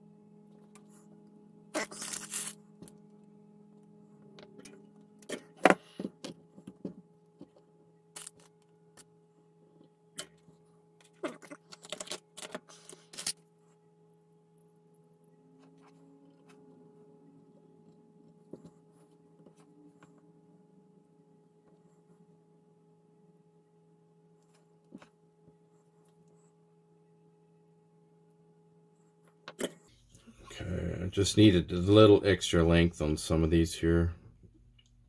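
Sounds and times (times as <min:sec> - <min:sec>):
steady low hum: 0:00.0 - 0:35.0
hands handling wires and parts: 0:09.8 - 0:13.4.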